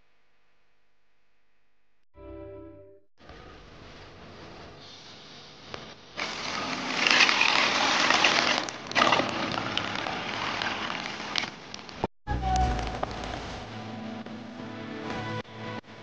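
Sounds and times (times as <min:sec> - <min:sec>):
water pouring into metal basin: 0:06.2 - 0:11.5.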